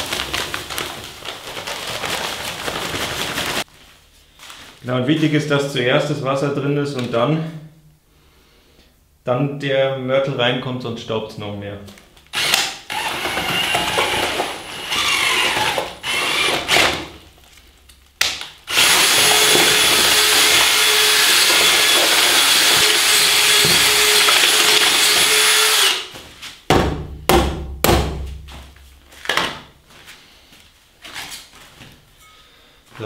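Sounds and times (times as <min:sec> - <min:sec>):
drill mixing mortar in bucket: 0:12.3 - 0:17.2, 0:18.7 - 0:26.1.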